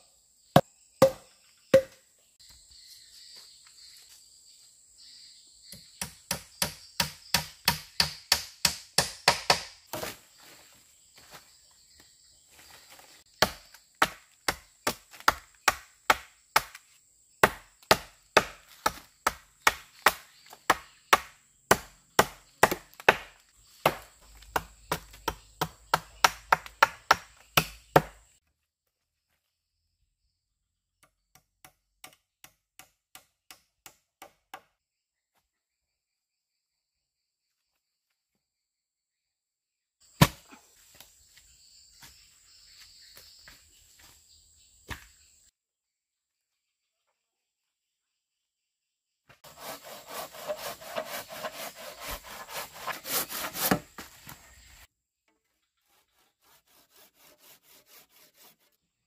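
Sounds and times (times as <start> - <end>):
wood being chopped: 0.6 - 2.0, 5.8 - 10.2, 13.4 - 16.8, 17.4 - 28.2, 40.2 - 41.0, 44.9 - 45.1, 52.0 - 54.4.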